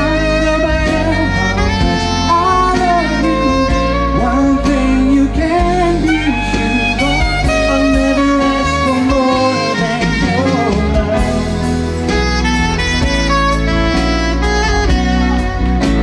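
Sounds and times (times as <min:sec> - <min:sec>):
man singing into microphone: 0:00.0 - 0:12.1
electric guitar: 0:00.0 - 0:16.0
live band music: 0:00.0 - 0:16.0.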